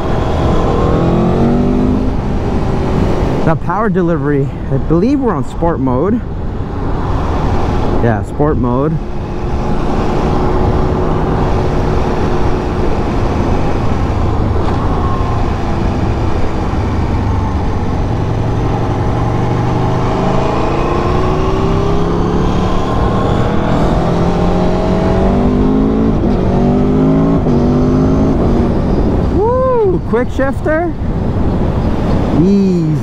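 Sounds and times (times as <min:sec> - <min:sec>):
motorcycle engine accelerating: 0:00.0 - 0:03.6, 0:09.0 - 0:29.4
wind rushing: 0:06.2 - 0:33.0.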